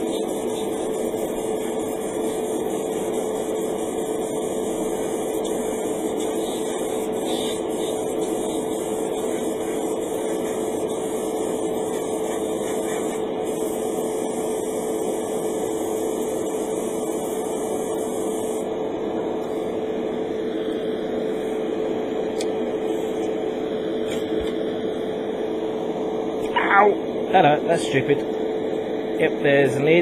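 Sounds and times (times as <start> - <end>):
airbrush spraying hiss: 0.0 - 18.7
electric motor hum: 0.0 - 27.3.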